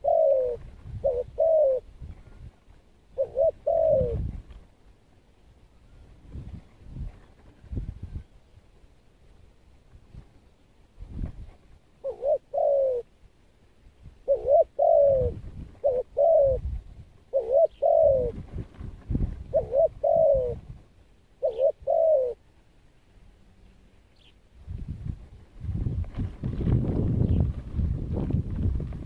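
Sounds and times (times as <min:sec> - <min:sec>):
dove cooing: 0:00.0 - 0:01.9, 0:03.1 - 0:04.4, 0:12.0 - 0:13.1, 0:14.2 - 0:18.4, 0:19.4 - 0:22.4.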